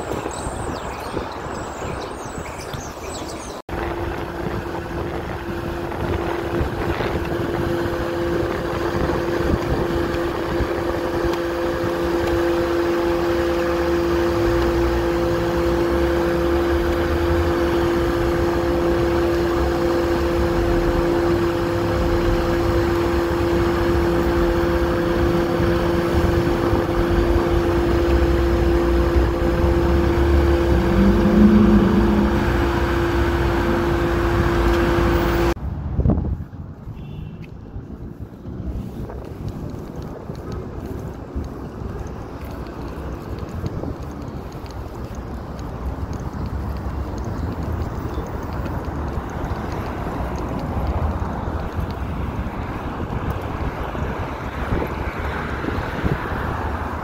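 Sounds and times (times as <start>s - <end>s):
blower fan humming: 3.7s - 35.6s
low rumble: 13.0s - 35.6s.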